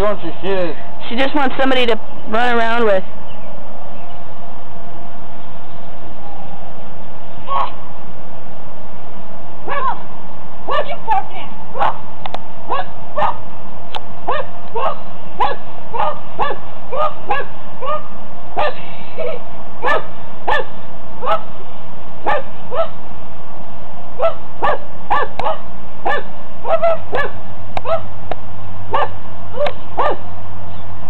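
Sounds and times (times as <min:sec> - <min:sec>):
puppy yipping: 0:07.5 - 0:07.8, 0:09.7 - 0:10.0, 0:12.7 - 0:13.4, 0:14.3 - 0:21.5, 0:24.2 - 0:28.1, 0:28.9 - 0:30.2.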